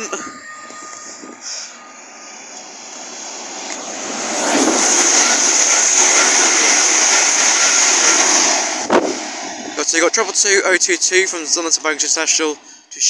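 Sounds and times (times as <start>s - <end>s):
passenger train passing at speed: 0.0s - 13.0s.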